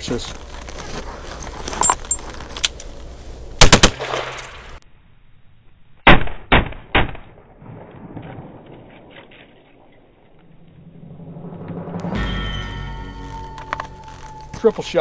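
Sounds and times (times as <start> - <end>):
revolver gunshots: 3.6 - 4.6.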